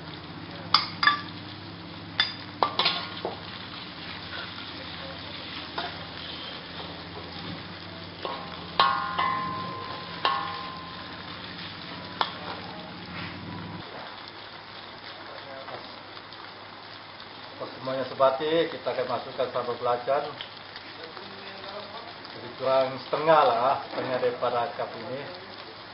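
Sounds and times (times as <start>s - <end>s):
vegetables sizzling in oil: 0.0s - 25.9s
metal spatula clanking on wok: 0.7s - 1.3s, 2.2s - 3.2s, 5.8s - 6.1s, 8.2s - 12.5s.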